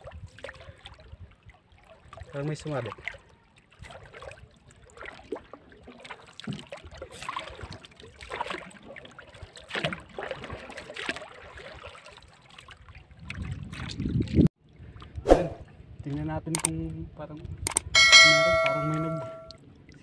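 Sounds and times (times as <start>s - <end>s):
water lapping against boat: 0.0s - 16.0s.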